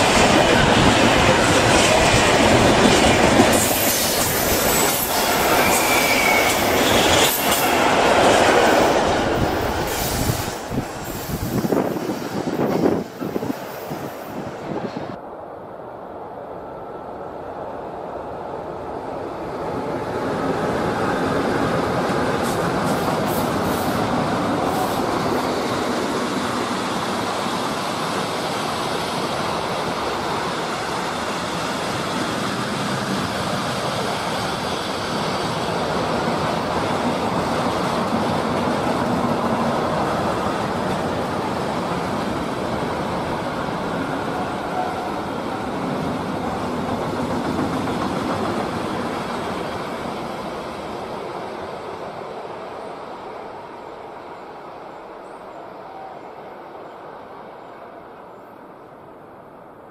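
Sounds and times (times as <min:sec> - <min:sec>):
freight train wheels clattering on rails: 0:00.0 - 0:13.6, 0:21.6 - 0:51.8.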